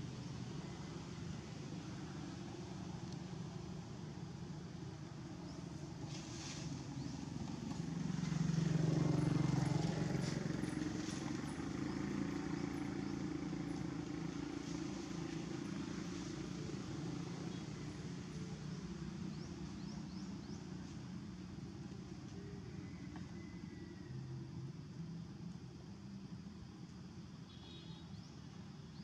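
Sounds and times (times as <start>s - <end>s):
vehicle engine rumble: 0.0s - 27.5s.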